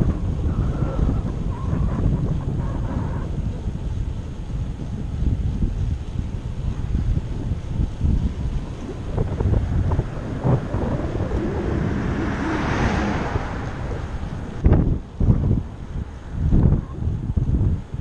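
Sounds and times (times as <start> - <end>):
wind buffeting microphone: 0.0 - 18.0
car passing: 7.2 - 16.6.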